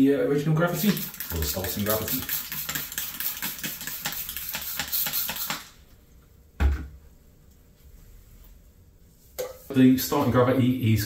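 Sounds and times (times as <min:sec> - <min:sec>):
spray bottle hissing sprays: 0:00.8 - 0:05.7.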